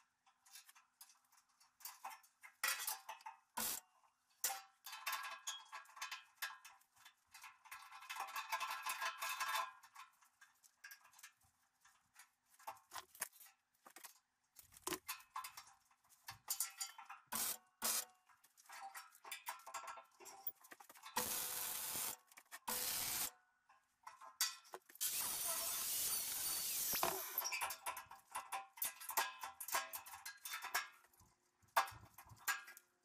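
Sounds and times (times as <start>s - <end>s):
tack welding bursts: 21.2s - 23.3s, 25.0s - 27.5s.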